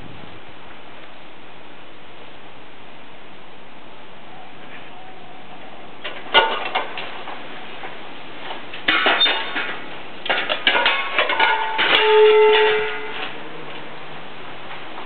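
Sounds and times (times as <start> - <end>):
metal wheel rims clanking: 6.0 - 15.0.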